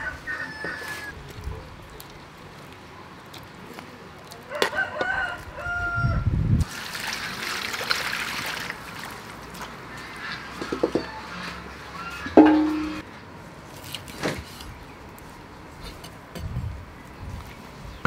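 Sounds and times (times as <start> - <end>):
rooster crowing: 0.0 - 1.2, 4.5 - 6.3.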